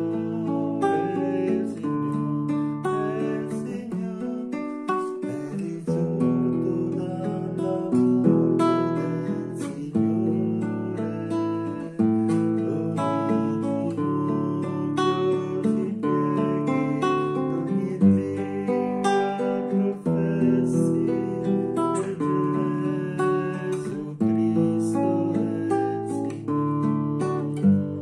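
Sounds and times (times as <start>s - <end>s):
man singing: 0.0s - 28.0s
nylon-string guitar strumming: 0.0s - 28.0s.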